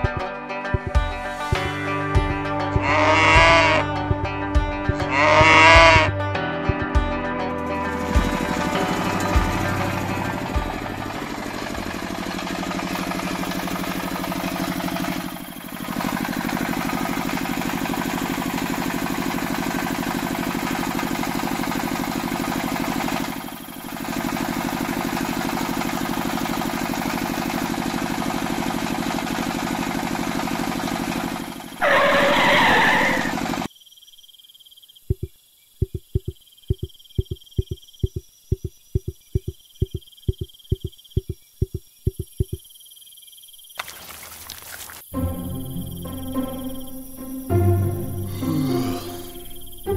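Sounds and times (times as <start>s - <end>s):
tractor engine chugging idle: 7.6s - 33.7s, 45.1s - 49.9s.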